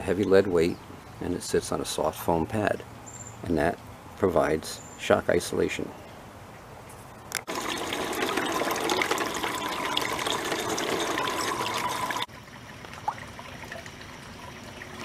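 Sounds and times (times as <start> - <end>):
water trickling and splashing: 7.4 - 15.0.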